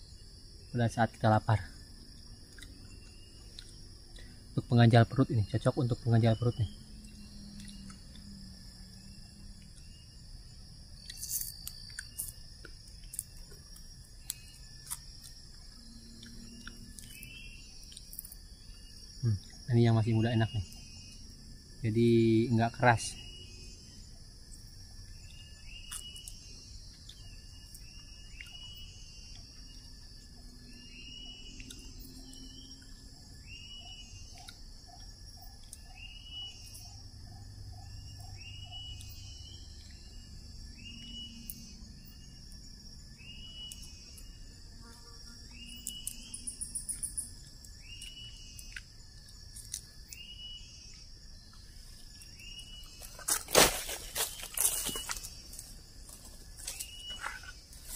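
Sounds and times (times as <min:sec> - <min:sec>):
insects droning: 0:00.0 - 0:57.9
rustling of dry leaves: 0:51.8 - 0:57.9.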